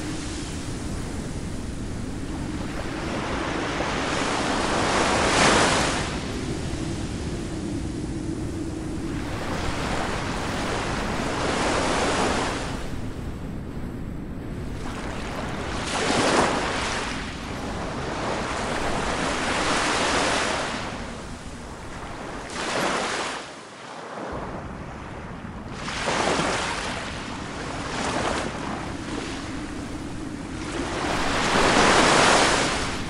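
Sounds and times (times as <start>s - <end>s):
waves breaking: 14.8s - 24.7s, 25.7s - 33.0s.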